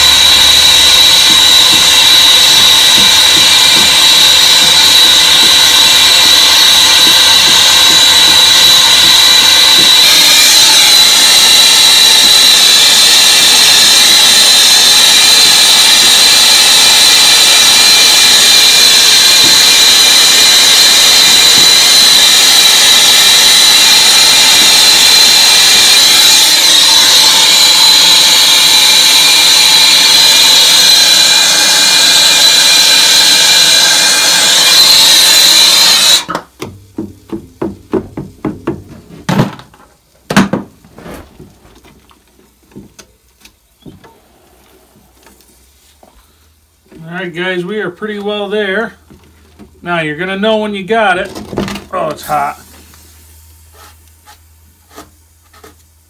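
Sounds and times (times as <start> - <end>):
propane torch roaring and whistling: 0.0 - 36.6.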